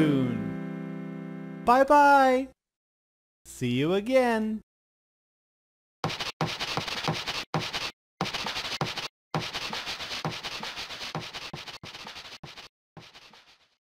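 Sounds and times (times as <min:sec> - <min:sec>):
eraser scrubbing chalkboard: 0:06.0 - 0:13.8.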